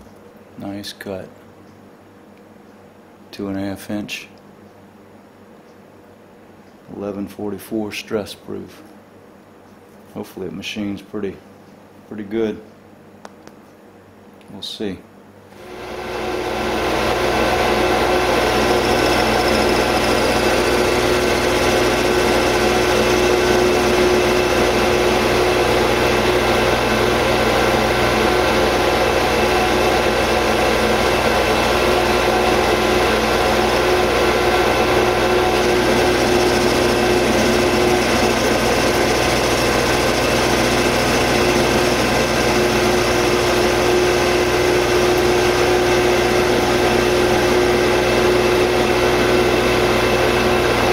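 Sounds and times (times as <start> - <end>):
metal lathe humming: 15.6 - 50.9.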